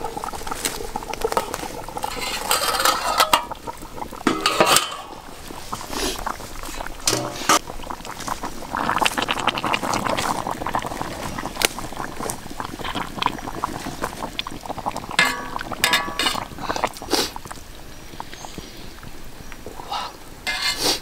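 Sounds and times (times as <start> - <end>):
liquid sloshing and bubbling: 0.0 - 19.1
tongs scraping metal pan: 2.0 - 3.6, 4.3 - 5.1, 7.1 - 7.6, 15.2 - 16.6, 20.5 - 21.0.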